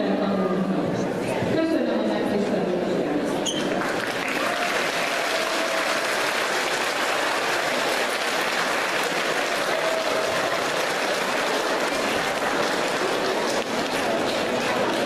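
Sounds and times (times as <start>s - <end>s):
audience applauding: 3.7s - 15.0s.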